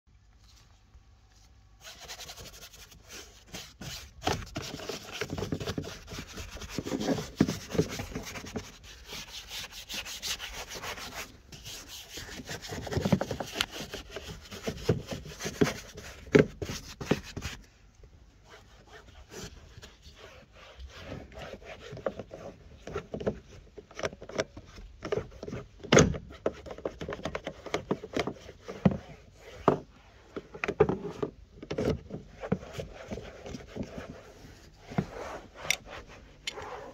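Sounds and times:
brush scrubbing: 0:01.8 - 0:17.6.

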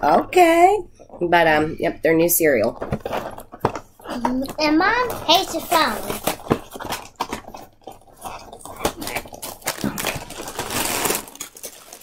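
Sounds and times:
plastic bag rustling: 0:02.6 - 0:12.0
cardboard box opening crackles: 0:02.8 - 0:12.0.

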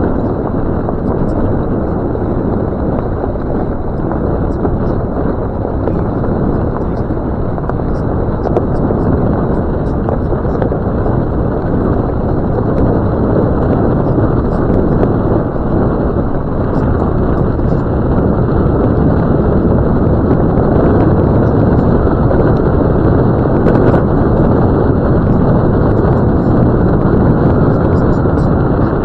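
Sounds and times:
engine rumble: 0:00.0 - 0:29.0.

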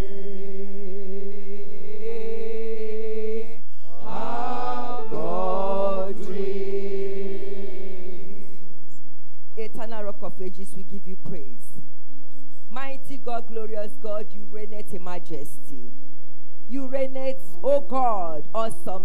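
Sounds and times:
backing singers: 0:00.0 - 0:08.5
woman singing worship: 0:00.0 - 0:08.5.

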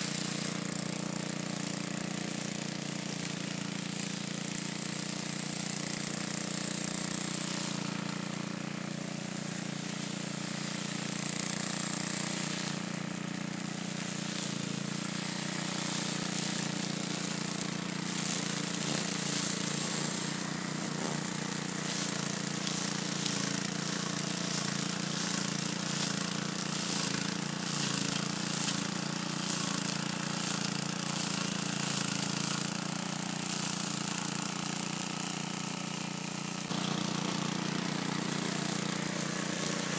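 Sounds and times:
lawn mower engine running: 0:00.0 - 0:39.9
rapid irregular crackle: 0:00.0 - 0:39.9.

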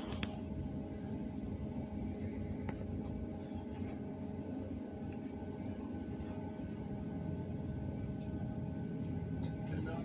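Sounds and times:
trolleybus cabin rumble: 0:00.0 - 0:10.0.

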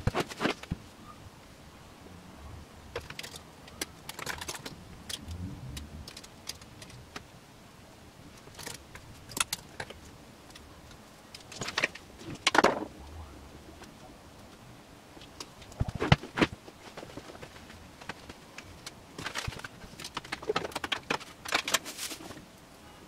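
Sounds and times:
fabric rustling: 0:15.6 - 0:22.5.

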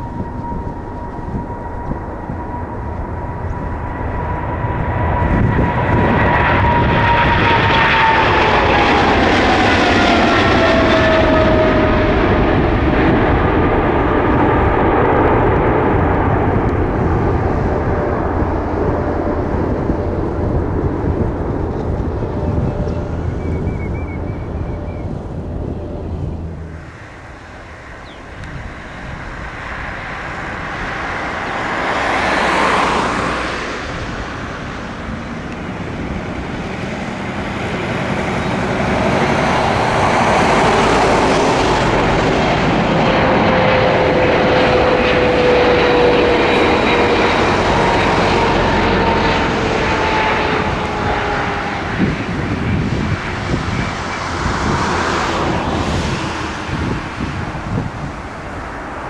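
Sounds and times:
whining tones sliding down: 0:00.0 - 0:12.8
jet roar passing: 0:00.0 - 0:59.0.

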